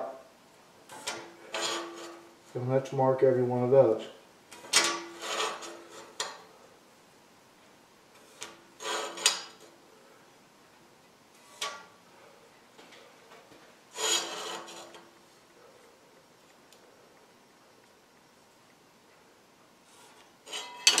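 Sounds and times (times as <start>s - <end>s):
metal square scraping on steel bar: 1.0s - 2.2s, 4.8s - 6.3s, 8.4s - 9.6s, 13.9s - 15.1s, 20.0s - 21.0s.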